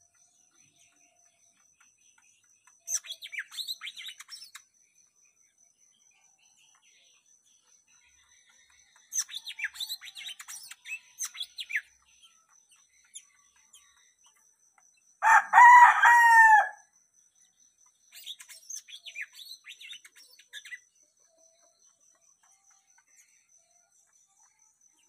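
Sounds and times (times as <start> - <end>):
songbird twittering: 1.8 - 4.7
rooster crowing: 15.2 - 16.8.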